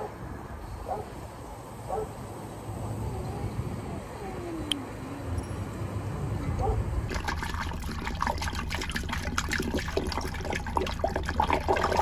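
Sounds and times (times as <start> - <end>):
water glugging and splashing: 7.1 - 12.0.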